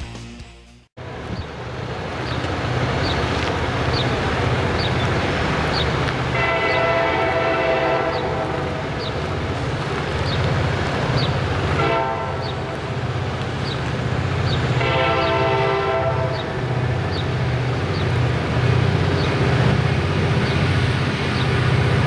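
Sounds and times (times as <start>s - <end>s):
diesel locomotive rumble: 1.0s - 22.0s
train air horn blast: 6.3s - 9.0s, 11.7s - 12.7s, 14.8s - 16.9s.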